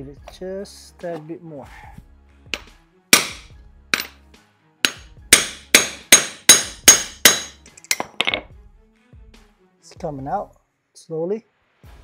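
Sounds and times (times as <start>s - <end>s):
hammer striking metal: 2.5s - 4.2s, 4.8s - 8.4s.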